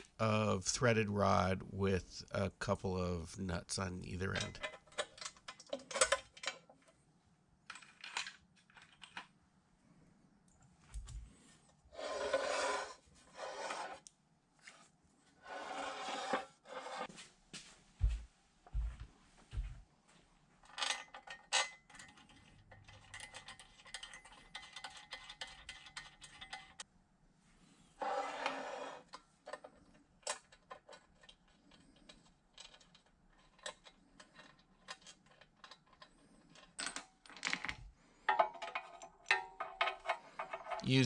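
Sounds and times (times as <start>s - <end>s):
metal rasp: 11.9s - 14.1s.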